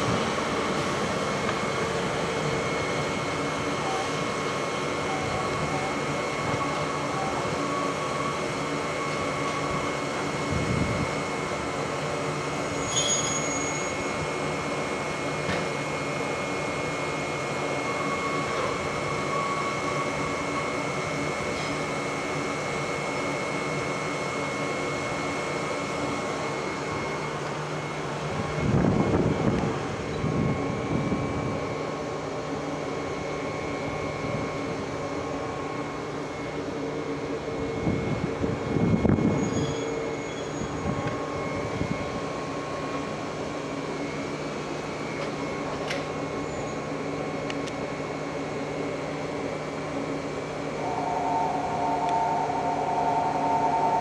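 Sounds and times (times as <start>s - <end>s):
electric train humming: 0.0s - 54.0s.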